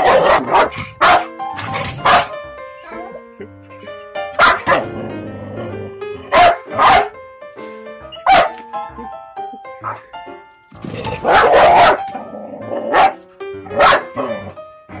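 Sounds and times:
dog barking: 0.0 - 1.3, 2.0 - 2.4, 4.4 - 4.9, 6.3 - 7.1, 8.2 - 8.6, 11.2 - 12.0, 12.8 - 14.3
background music: 0.0 - 15.0.

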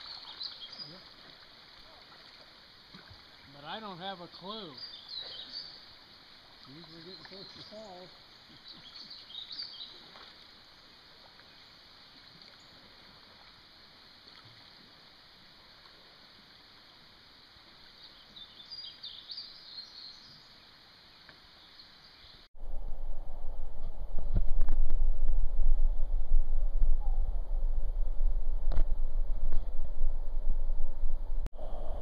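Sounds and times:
songbird chirping: 0.0 - 12.9, 17.8 - 22.5
faint steady hiss: 0.0 - 24.5.

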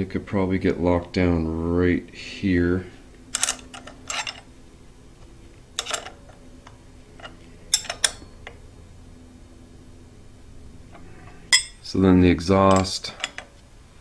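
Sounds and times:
wrench clinking on metal: 3.4 - 4.5, 5.8 - 6.4, 7.2 - 8.4, 11.5 - 11.8, 12.7 - 13.6.

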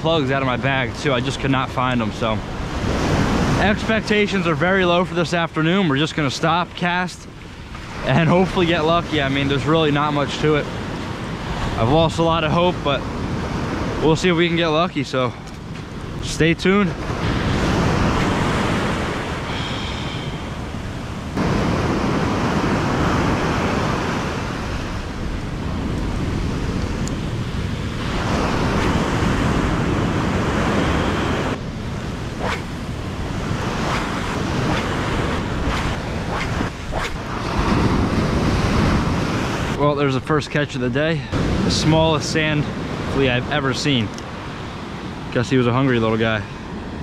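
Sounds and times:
ocean surf breaking on beach: 0.0 - 39.9, 41.3 - 47.0
wind buffeting microphone: 2.0 - 14.8, 15.4 - 39.8.

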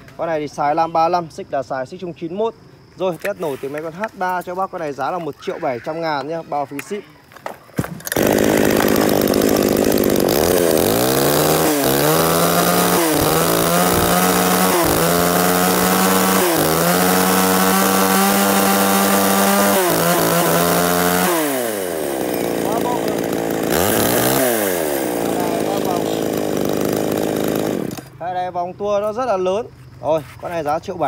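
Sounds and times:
chainsaw revving: 8.0 - 28.2.

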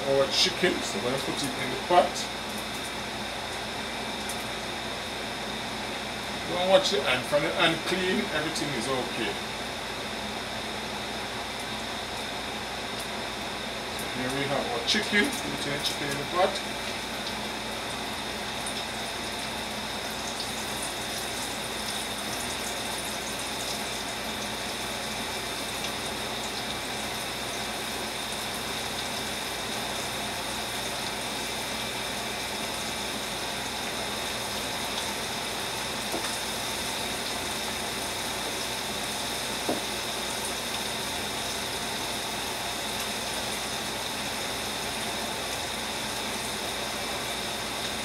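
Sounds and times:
chicken frying in hot oil: 0.0 - 48.0.

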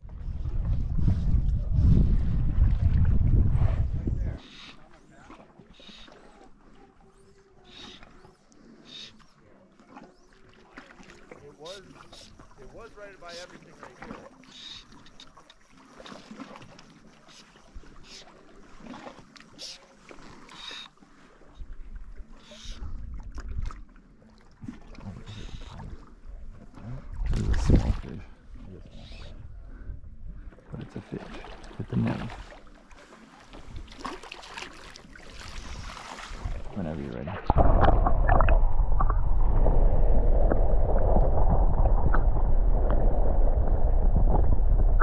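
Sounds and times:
wind gusting on microphone: 0.0 - 4.4, 27.2 - 30.4, 35.6 - 45.0
muffled underwater rumble: 0.0 - 15.2, 21.3 - 34.0, 35.1 - 45.0
underwater clicks and gurgles: 0.0 - 45.0
lake waves lapping: 0.2 - 45.0.

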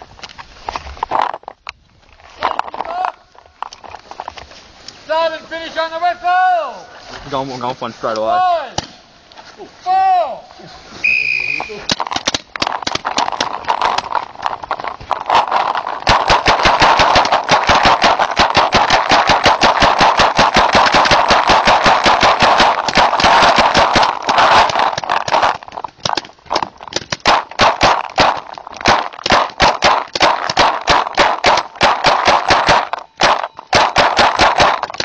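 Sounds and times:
paintball markers firing: 11.6 - 35.0.

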